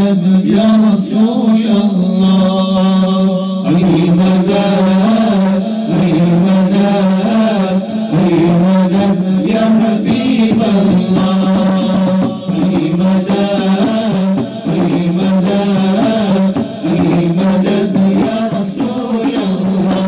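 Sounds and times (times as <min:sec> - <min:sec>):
men chanting in unison: 0:00.0 - 0:20.0.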